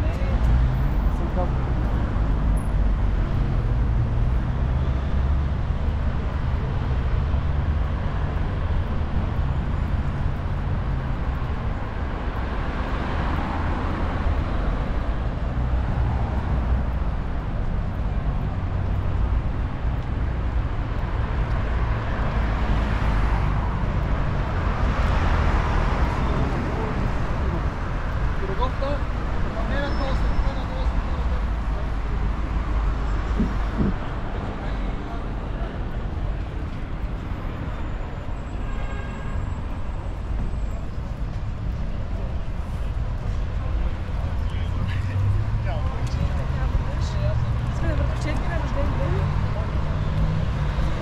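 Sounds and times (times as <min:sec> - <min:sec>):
rumble of street traffic: 0:00.0 - 0:51.0.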